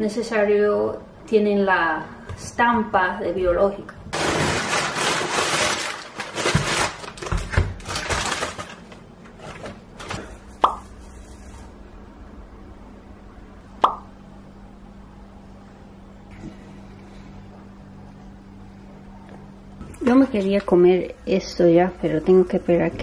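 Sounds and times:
low steady hum: 0:00.0 - 0:23.0
plastic bags crinkling: 0:04.1 - 0:11.8.

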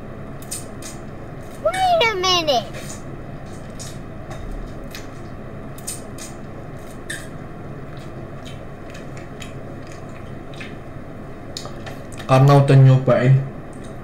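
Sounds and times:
steady low hum: 0:00.0 - 0:14.0
quiet chewing: 0:05.8 - 0:10.9.

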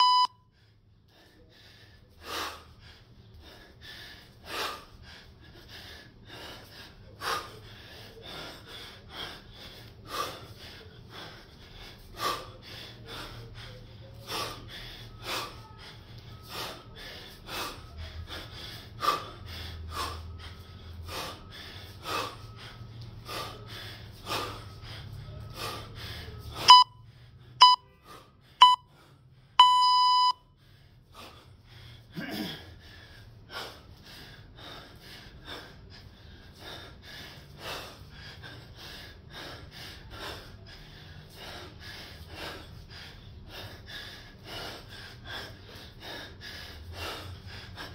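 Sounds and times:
electronic timer beeps: 0:00.0 - 0:00.4, 0:26.6 - 0:27.0, 0:27.6 - 0:27.9, 0:28.6 - 0:28.9, 0:29.6 - 0:30.4
man breathing hard: 0:00.1 - 0:47.9.

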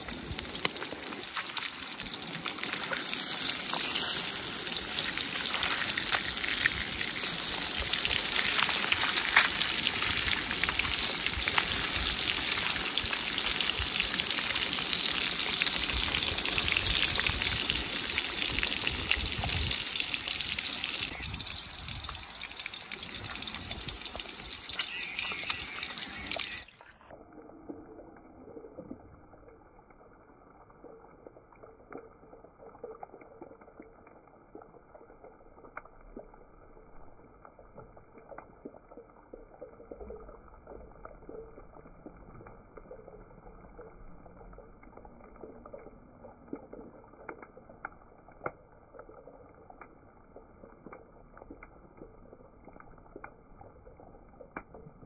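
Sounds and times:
fish sizzling in hot oil: 0:00.0 - 0:26.9.

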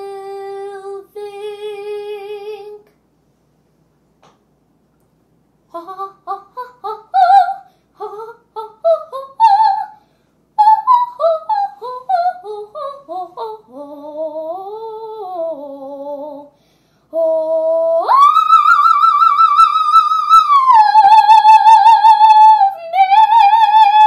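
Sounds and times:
girl singing operatically: 0:00.0 - 0:02.8, 0:05.7 - 0:10.0, 0:10.6 - 0:24.0.

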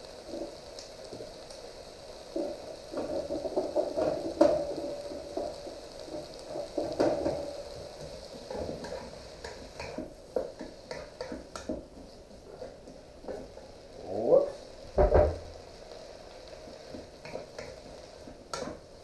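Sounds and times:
vegetables sizzling in a wok: 0:00.0 - 0:19.0.

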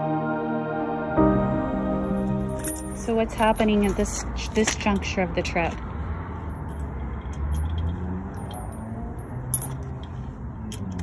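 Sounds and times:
tools clinking and jangling: 0:02.2 - 0:05.2, 0:06.4 - 0:11.0.

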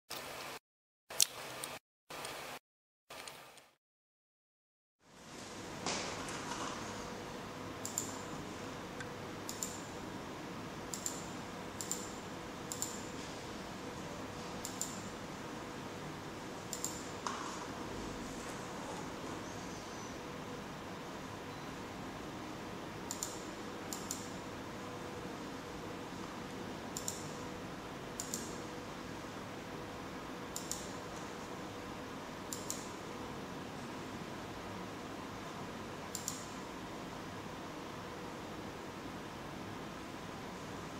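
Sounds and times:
computer mouse button clicking: 0:10.9 - 0:13.1, 0:14.6 - 0:15.1, 0:16.7 - 0:17.1, 0:23.1 - 0:24.3, 0:27.0 - 0:27.3, 0:28.2 - 0:28.6, 0:30.6 - 0:30.9, 0:32.5 - 0:32.9, 0:36.1 - 0:36.5.

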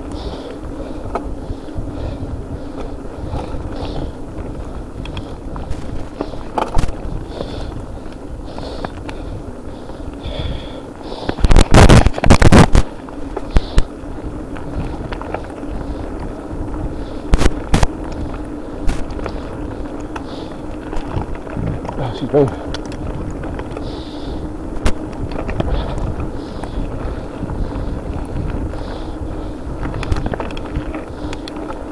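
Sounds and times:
bike rolling and drivetrain noise: 0:00.0 - 0:31.9.

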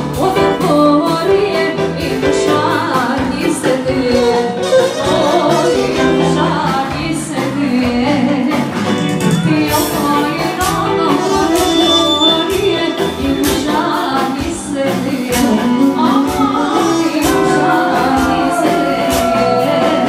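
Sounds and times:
person singing: 0:00.0 - 0:20.0
steady drum beat: 0:00.0 - 0:20.0
folk melody instrument: 0:02.6 - 0:14.4.

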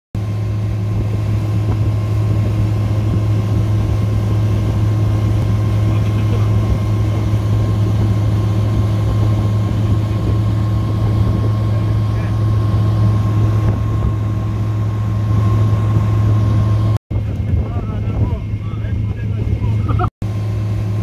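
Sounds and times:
water rushing and splashing: 0:00.2 - 0:17.0
outboard motor droning: 0:00.2 - 0:21.0.

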